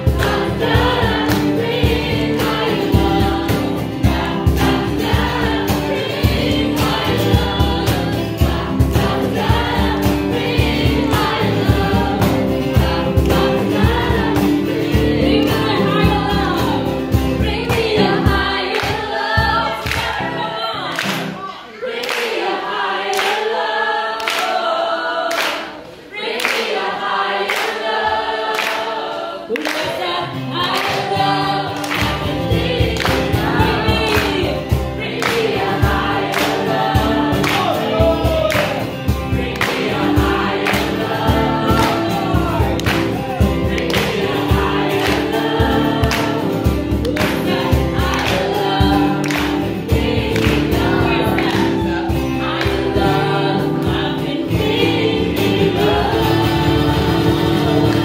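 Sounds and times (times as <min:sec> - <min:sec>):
hand claps: 0:00.0 - 0:15.8, 0:17.6 - 0:20.3, 0:20.9 - 0:24.7, 0:25.3 - 0:54.0, 0:57.6 - 0:58.0
bass: 0:00.0 - 0:20.6, 0:30.6 - 0:58.0
acoustic guitar strumming: 0:00.0 - 0:21.6, 0:30.2 - 0:58.0
group singing along: 0:00.0 - 0:58.0
woman singing into a microphone: 0:05.7 - 0:21.6, 0:29.5 - 0:36.0.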